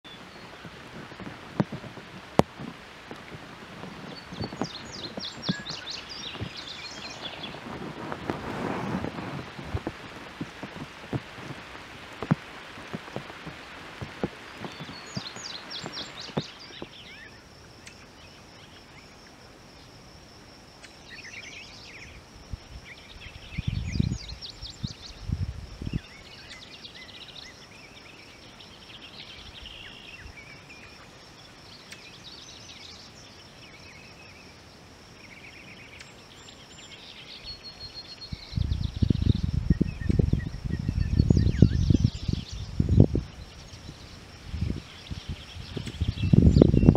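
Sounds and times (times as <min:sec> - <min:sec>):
wind on microphone: 0:00.0 - 0:17.4, 0:21.9 - 0:26.7, 0:37.5 - 0:46.9
songbirds singing: 0:00.0 - 0:46.9.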